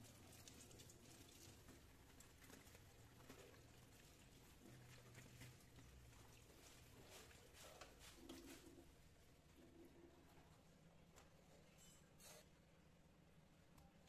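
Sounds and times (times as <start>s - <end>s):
tap water running on vegetables: 0.0s - 9.0s.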